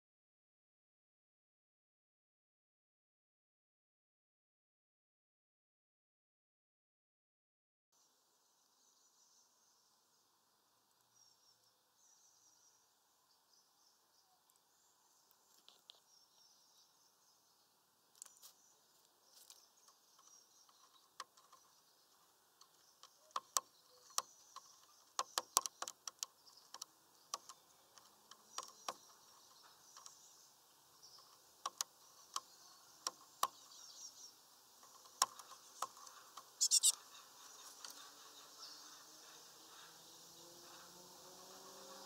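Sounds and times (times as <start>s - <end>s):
faint high chirping: 11.0s - 41.6s
bird pecking on wooden perch: 22.6s - 29.2s, 31.2s - 33.6s
high bird calls: 32.0s - 41.0s.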